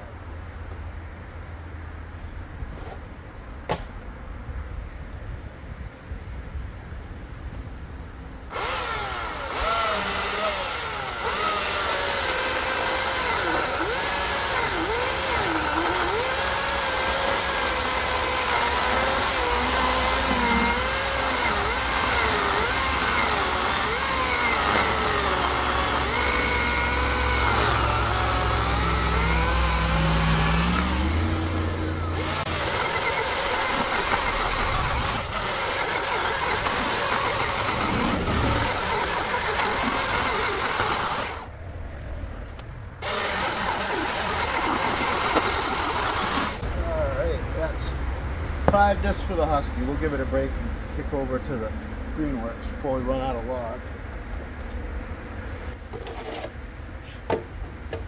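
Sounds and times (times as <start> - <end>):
chainsaw cutting through log: 8.5 - 41.5, 43.0 - 46.8.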